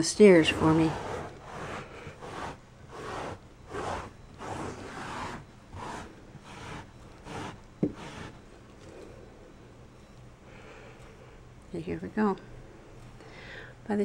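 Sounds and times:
cloth rubbing on carpet: 0:00.4 - 0:08.4.

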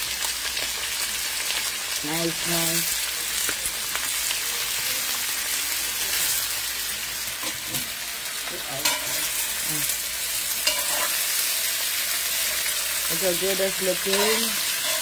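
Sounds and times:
potatoes sizzling in oil: 0:00.0 - 0:15.0
spoon scraping pan: 0:08.7 - 0:11.6, 0:14.0 - 0:15.0.

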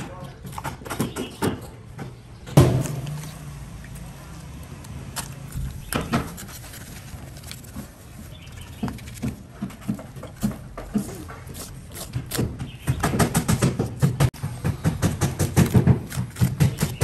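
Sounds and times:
knife scraping fish scales: 0:11.4 - 0:12.5.

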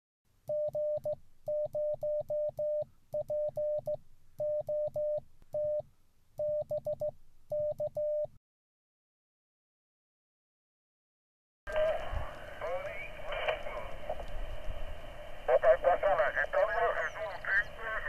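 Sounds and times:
morse code beeps: 0:00.5 - 0:05.8, 0:06.4 - 0:08.4.

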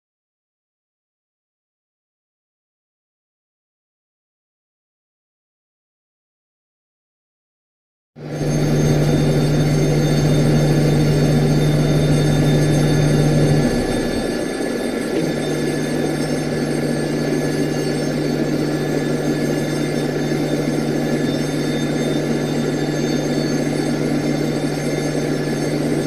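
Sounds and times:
high steady whining tones: 0:08.2 - 0:26.0
low machinery hum: 0:08.2 - 0:26.0.

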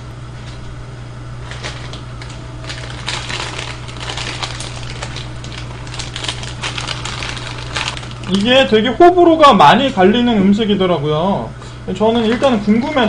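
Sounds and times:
steady low hum: 0:00.0 - 0:13.0
plastic packets crinkling: 0:01.4 - 0:08.7.

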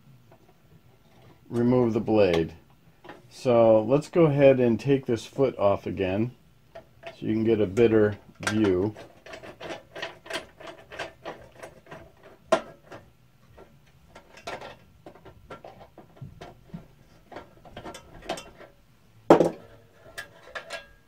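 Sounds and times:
small metal clicks and rattles: 0:06.7 - 0:18.8, 0:19.7 - 0:21.0.

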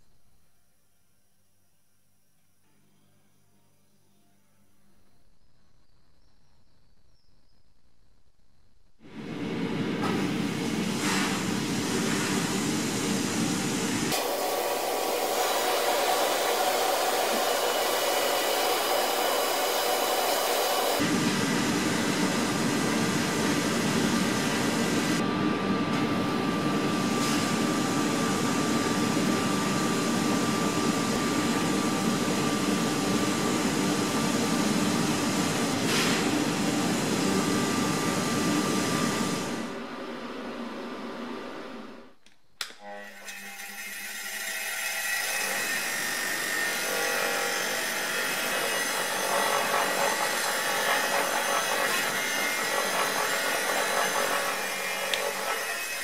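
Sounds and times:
workshop machinery rushing: 0:09.4 - 0:25.2, 0:45.2 - 0:56.0.

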